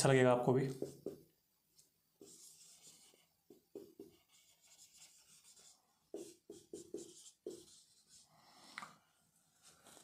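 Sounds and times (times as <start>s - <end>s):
marker writing on whiteboard: 0.7s - 1.3s, 2.2s - 8.3s.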